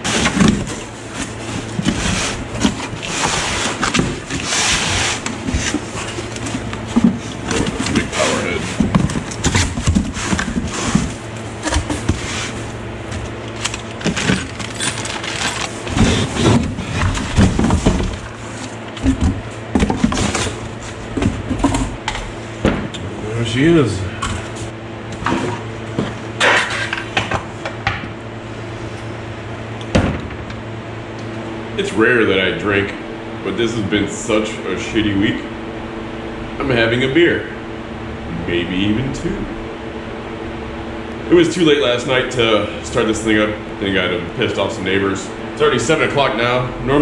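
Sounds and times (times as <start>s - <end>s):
cardboard rustling and scraping: 0.0s - 21.9s.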